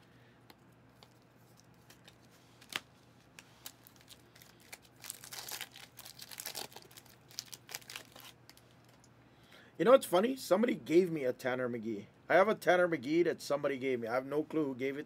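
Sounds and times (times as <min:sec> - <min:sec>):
foil pack crinkling and tearing: 0:01.0 - 0:09.0.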